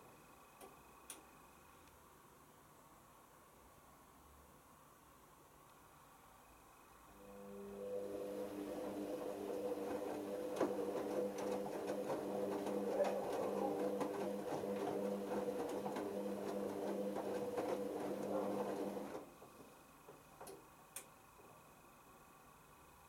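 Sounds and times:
washing machine motor hum: 7.2 - 19.6.

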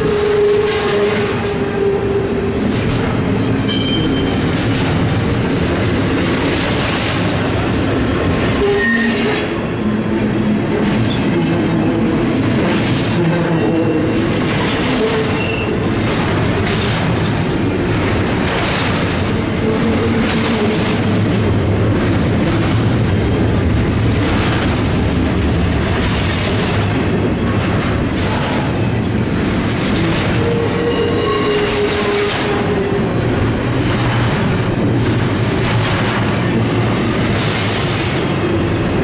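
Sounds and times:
train wheels rumbling on rail: 0.0 - 39.0
thin squealing tones: 30.4 - 32.9.

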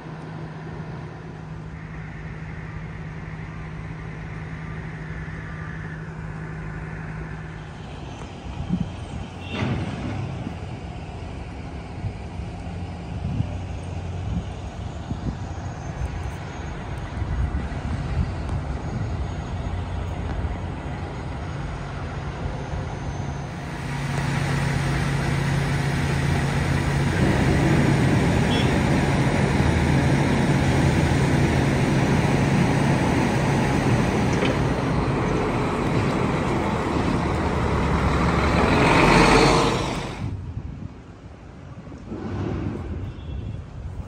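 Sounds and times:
diesel engine idling: 10.4 - 40.5.

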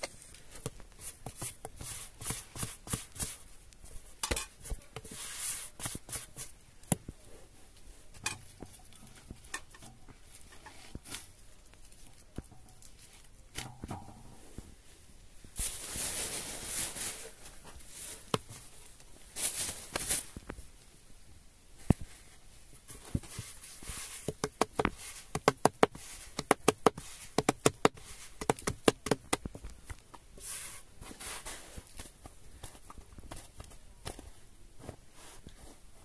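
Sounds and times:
hands brushing flour: 0.0 - 6.6, 23.0 - 29.4, 30.4 - 36.0
hands patting dough: 0.0 - 7.2, 18.2 - 18.7, 22.9 - 35.8.

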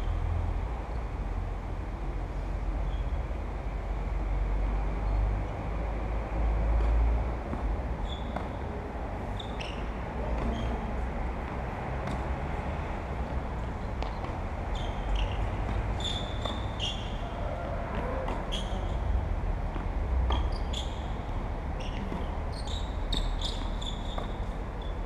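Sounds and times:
shoe squeaks on court: 8.0 - 8.6, 9.3 - 10.9, 14.1 - 17.3, 18.0 - 19.0, 20.3 - 21.2, 21.8 - 25.0
tennis ball struck and bouncing: 11.4 - 12.3, 15.1 - 17.0, 21.9 - 22.3.

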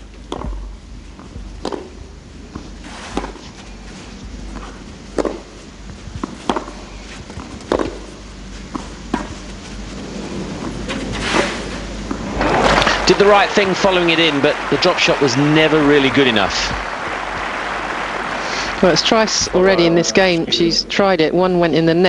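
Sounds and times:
tennis ball hit by rackets: 0.3 - 0.7, 1.6 - 1.9, 3.1 - 3.5, 4.6 - 5.5, 6.2 - 6.8, 7.4 - 8.1.

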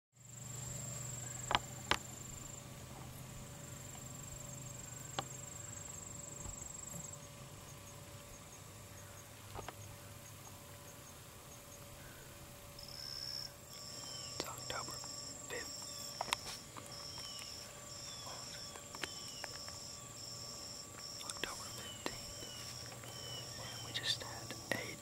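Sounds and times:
insects chirping: 0.2 - 25.0
insects trilling: 0.2 - 25.0
sharp clicks: 18.8 - 19.8.

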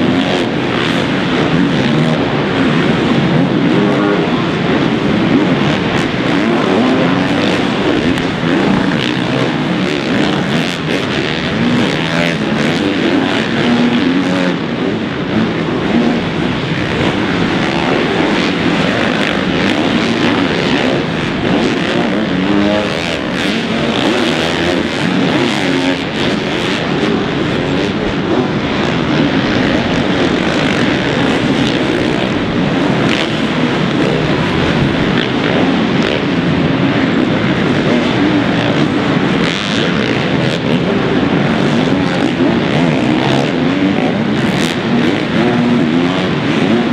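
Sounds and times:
motocross bike engines revving: 0.0 - 46.9.

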